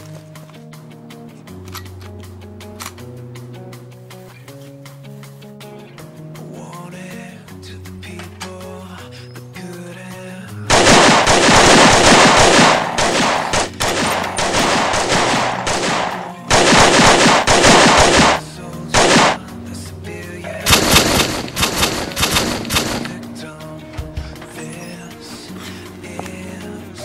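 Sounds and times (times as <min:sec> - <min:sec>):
background music: 0:00.0 - 0:27.0
pistol gunfire: 0:10.7 - 0:19.5, 0:20.7 - 0:23.2.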